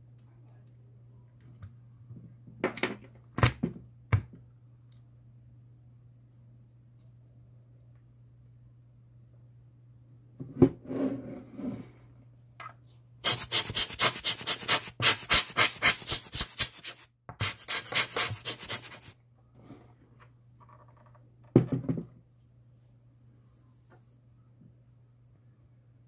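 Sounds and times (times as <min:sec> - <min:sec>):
rapid rubbing strokes: 0:13.2 - 0:19.1.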